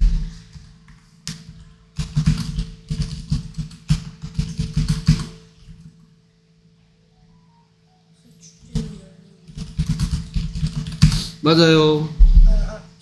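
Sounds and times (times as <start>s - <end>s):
keyboard typing: 9.5s - 11.3s.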